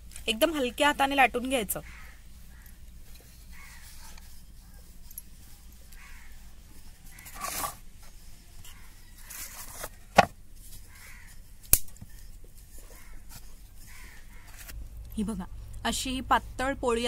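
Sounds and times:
rolling pin scraping swishes: 7.2 - 10.3.

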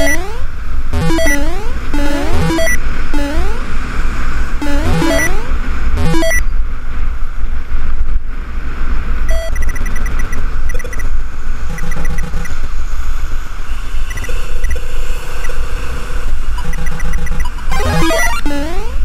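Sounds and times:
faint electronic bleeps: 0.0 - 3.7, 4.6 - 6.5, 9.3 - 11.1, 11.7 - 12.5, 16.6 - 19.0
held electronic tone: 0.0 - 3.7, 4.6 - 6.5, 9.3 - 11.0, 11.7 - 12.5, 16.6 - 19.0
wind and road noise: 0.0 - 19.0.

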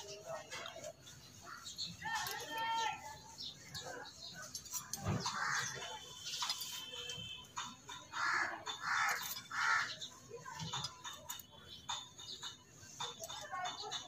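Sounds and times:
crow cawing: 8.1 - 10.0
metal tools clinking on iron: 8.7 - 9.6.

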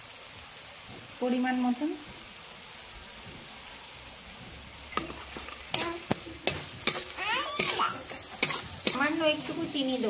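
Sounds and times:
masala sizzling in a pan: 0.0 - 10.0
metal spatula scraping a pan: 4.9 - 10.0.

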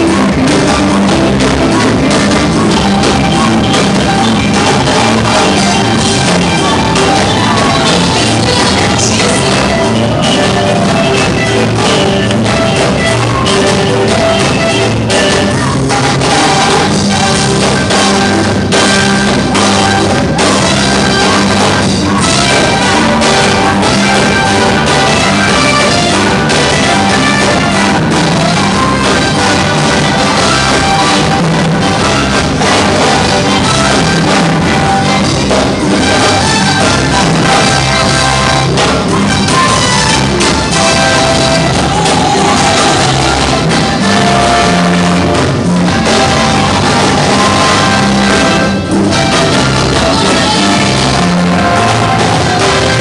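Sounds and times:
voices singing: 0.0 - 17.5, 39.6 - 53.0
drums: 0.0 - 53.0
electric bass: 0.0 - 53.0
electric guitar: 0.0 - 53.0
keyboard: 0.0 - 53.0
live gospel band music: 0.0 - 53.0.

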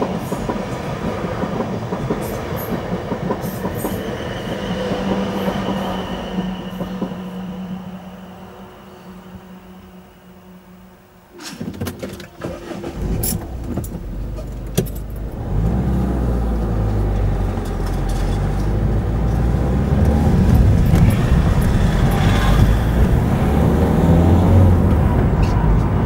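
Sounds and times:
clicks and rattles inside car: 11.4 - 15.4
car engine and road rumble: 11.5 - 26.0.

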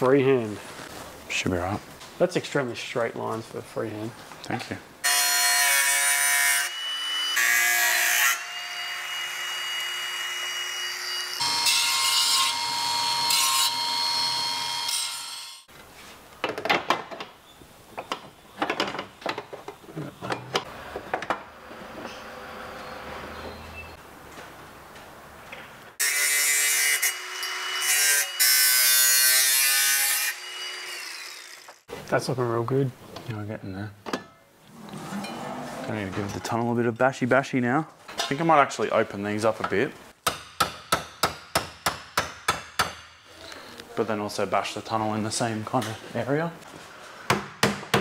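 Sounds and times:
angle grinder cutting steel: 5.1 - 15.7, 26.0 - 31.9.

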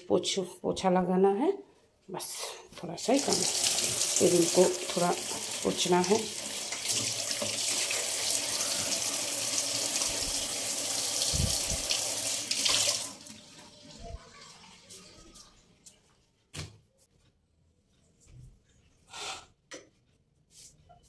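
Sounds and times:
tap water running onto plates: 3.0 - 15.5.

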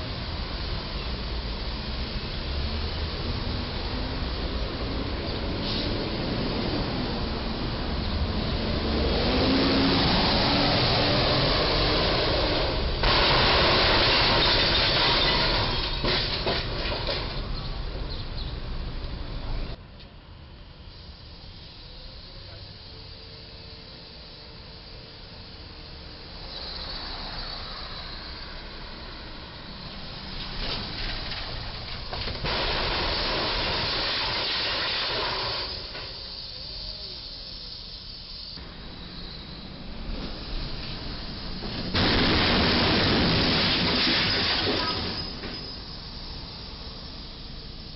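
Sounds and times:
traffic noise: 0.0 - 47.9
loud metal crunching and grinding: 13.0 - 17.4, 42.0 - 45.4.

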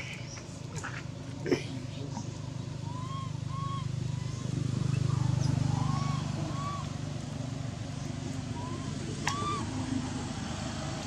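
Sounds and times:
passing motor vehicle hum: 0.0 - 11.0
short chirping calls: 2.8 - 7.0.

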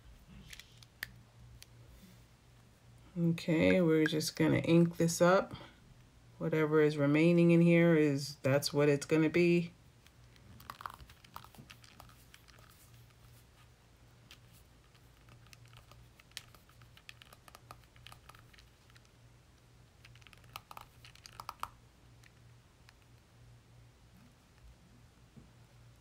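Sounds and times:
low steady hum: 0.0 - 26.0
pen clicks and handling: 10.2 - 13.2, 14.3 - 19.2, 20.0 - 23.1.

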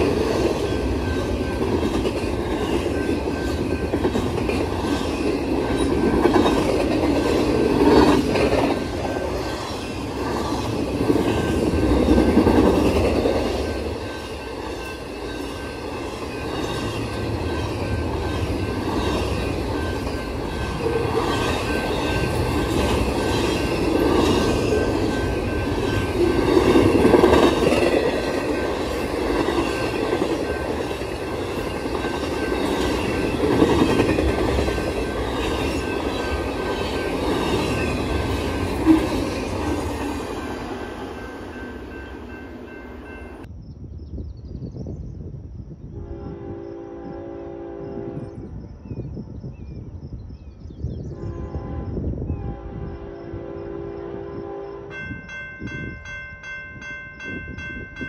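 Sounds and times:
freight train wheels clattering: 0.0 - 43.5.

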